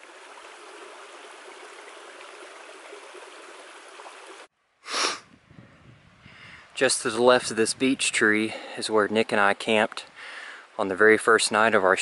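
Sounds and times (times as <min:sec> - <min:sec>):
creek water rushing over stones: 0:00.0 - 0:04.5.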